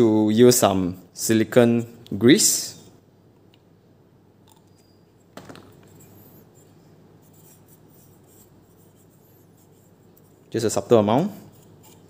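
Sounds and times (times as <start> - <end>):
light rubbing and scratching: 4.8 - 12.0.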